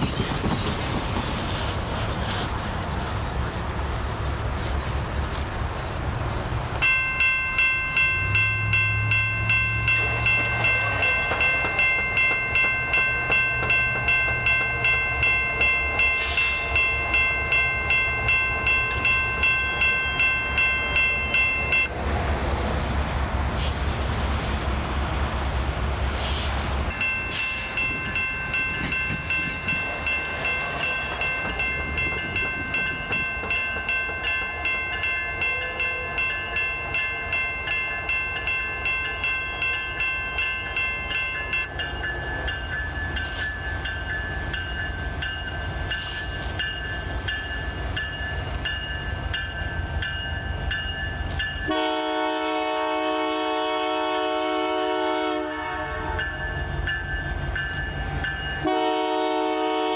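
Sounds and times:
diesel locomotive engine rumble: 0:00.0 - 0:59.9
locomotive bell ringing: 0:06.8 - 0:22.0, 0:26.9 - 0:59.9
locomotive air horn: 0:51.7 - 0:56.4, 0:58.6 - 0:59.9.

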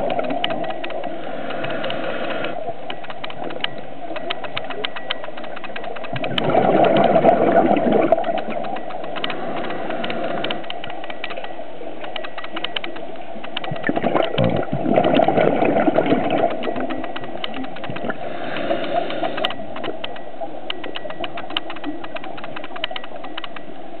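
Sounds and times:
crackling clicks: 0:00.0 - 0:23.8
underwater water noise: 0:00.0 - 0:24.0
regulator bubbles burbling: 0:03.5 - 0:11.5, 0:13.6 - 0:22.3.

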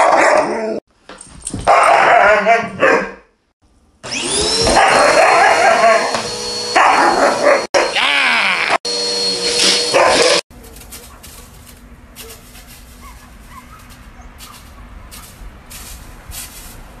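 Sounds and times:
vacuum cleaner motor: 0:04.0 - 0:10.4
rustling: 0:10.5 - 0:17.0.

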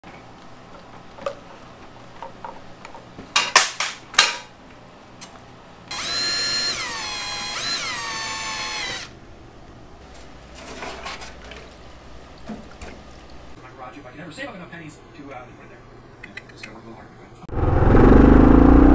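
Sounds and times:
cordless drill whine: 0:05.9 - 0:09.1.

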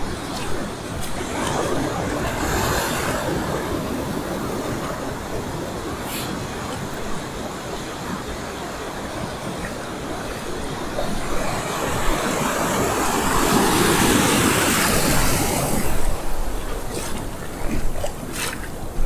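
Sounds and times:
waves breaking: 0:00.0 - 0:19.0
whitewater rushing over shallows: 0:00.0 - 0:19.0.

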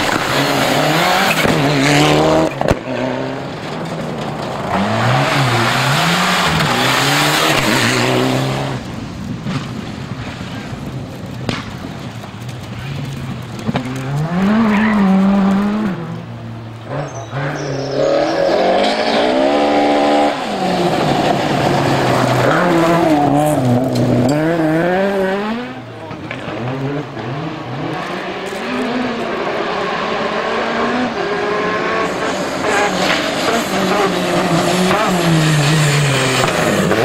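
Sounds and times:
rally car engine revving: 0:00.0 - 0:10.8, 0:11.4 - 0:37.0.

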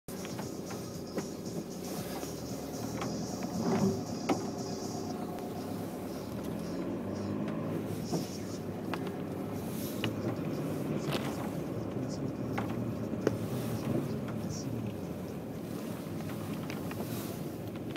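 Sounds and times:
car engine and tyre rumble: 0:00.0 - 0:17.9
scattered clicks: 0:00.1 - 0:09.2
tyres through wet slush: 0:00.1 - 0:17.9.

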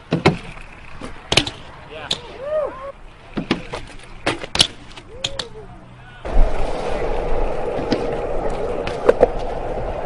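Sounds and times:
bike clicks and knocks: 0:00.0 - 0:02.3, 0:03.1 - 0:05.6, 0:07.7 - 0:09.8
bike tyres rolling on concrete: 0:00.0 - 0:10.0.

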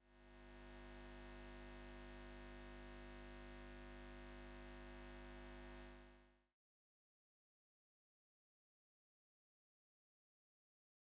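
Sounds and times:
faint steady hum: 0:00.0 - 0:06.5.

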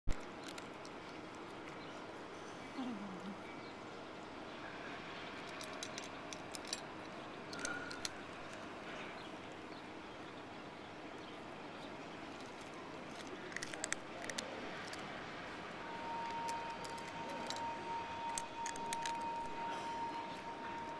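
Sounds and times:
cat crunching dry kibble: 0:00.1 - 0:02.3, 0:05.3 - 0:09.7, 0:11.6 - 0:20.9.

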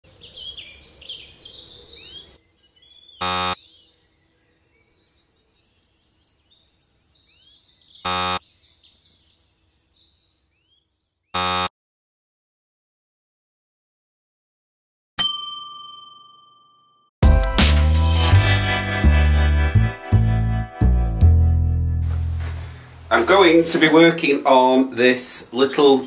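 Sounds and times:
birds chirping and singing: 0:00.1 - 0:11.3
short loud buzzing tone: 0:11.4 - 0:11.7.

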